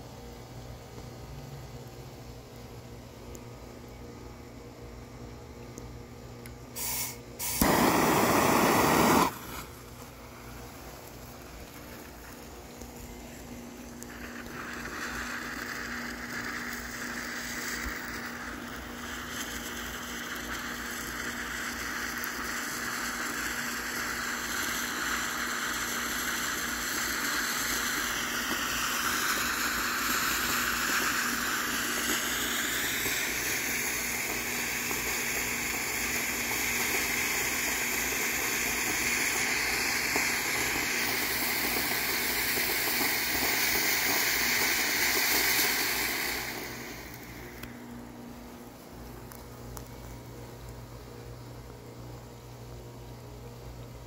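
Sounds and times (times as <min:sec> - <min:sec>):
firework fountain spraying hiss: 0:06.7 - 0:49.0.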